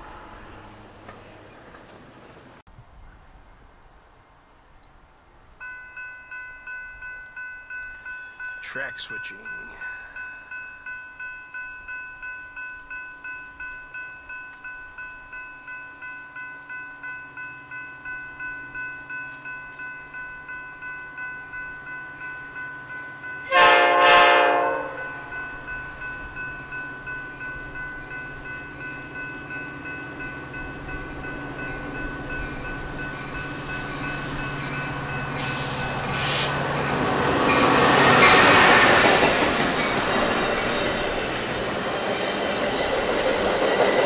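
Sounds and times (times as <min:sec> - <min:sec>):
train rumbling: 0:00.0 - 0:04.0, 0:04.6 - 0:44.0
railroad crossing bell ringing: 0:05.6 - 0:43.0
train horn blast: 0:23.4 - 0:25.3.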